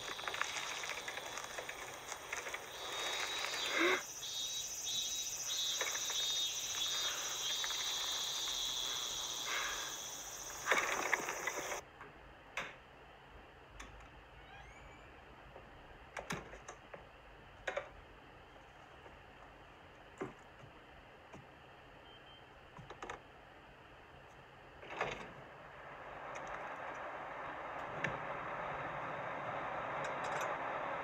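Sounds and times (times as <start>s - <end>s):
cicadas droning: 0.0s - 11.8s, 25.6s - 31.0s
faint clicks: 4.9s - 11.8s.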